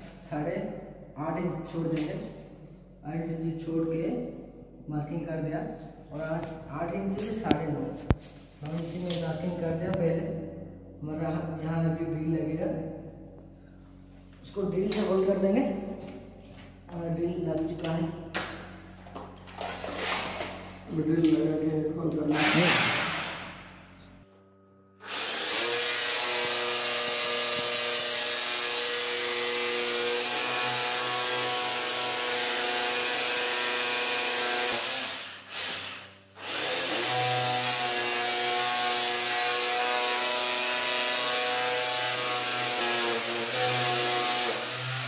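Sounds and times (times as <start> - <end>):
electric drill boring into wall: 22.4 - 23.8, 25.0 - 45.0.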